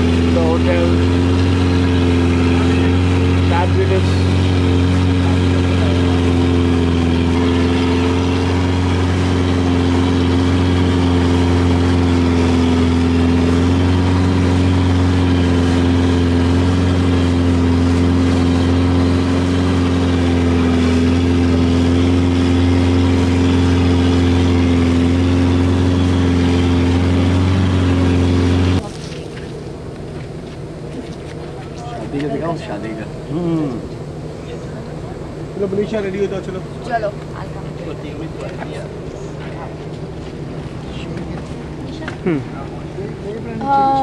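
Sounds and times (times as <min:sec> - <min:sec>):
boat engine running: 0:00.0 - 0:44.0.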